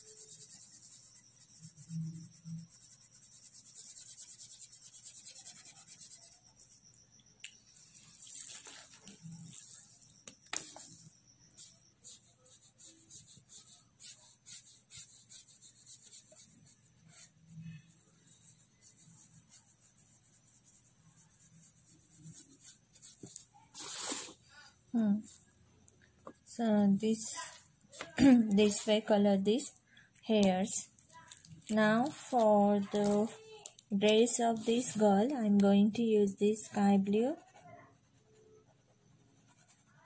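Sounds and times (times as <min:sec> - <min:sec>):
felt-tip pen scratching on paper: 0:00.0 - 0:06.9, 0:10.6 - 0:24.4, 0:36.8 - 0:40.0.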